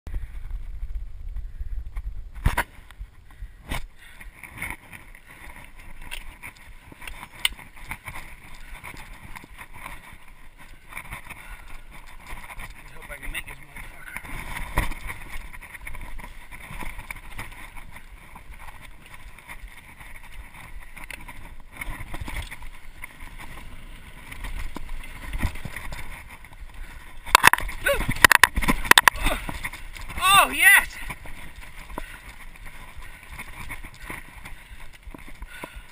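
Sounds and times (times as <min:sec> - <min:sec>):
knobby tyres rolling on dirt: 0:00.1 - 0:35.9
bike frame rattling and knocking: 0:04.4 - 0:30.2.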